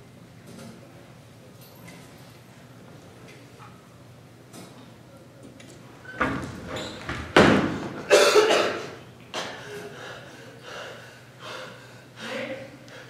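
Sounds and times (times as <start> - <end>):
door slamming: 6.2 - 8.0
door thud: 7.1 - 8.0.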